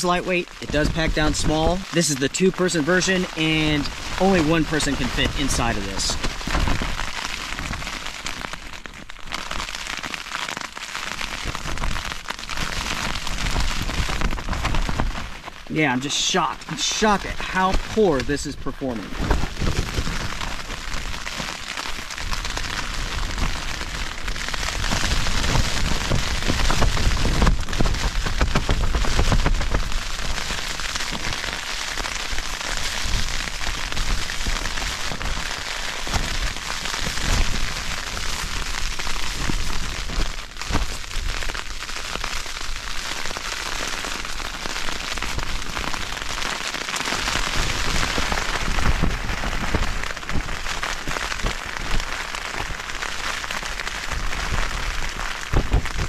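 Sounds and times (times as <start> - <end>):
heavy rain on fabric: 0.0 - 56.0.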